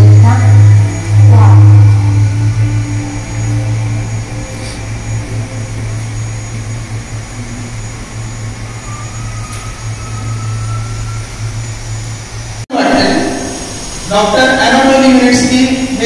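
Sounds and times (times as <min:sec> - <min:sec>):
faint rising whistle: 0:00.0 - 0:12.6
low droning hum: 0:00.0 - 0:16.0.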